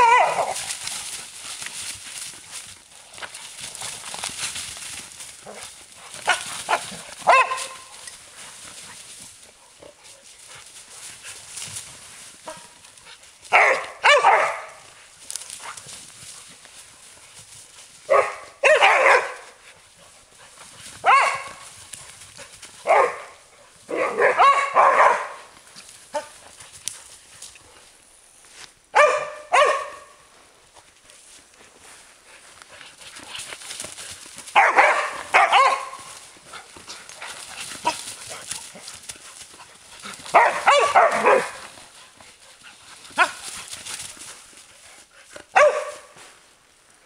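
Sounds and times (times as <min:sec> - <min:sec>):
dogs barking in play: 0:00.0 - 0:00.9, 0:05.4 - 0:10.2, 0:12.3 - 0:15.0, 0:18.0 - 0:26.5, 0:28.9 - 0:30.3, 0:34.3 - 0:44.3, 0:45.3 - 0:46.2
dry leaves rustling underfoot: 0:00.0 - 0:24.2, 0:30.0 - 0:45.0.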